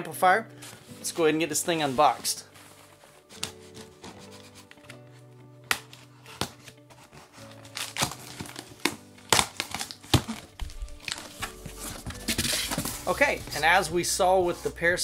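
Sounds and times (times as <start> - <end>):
background music with held notes: 0.0 - 15.0
packing tape crackling and scraping: 1.7 - 13.7.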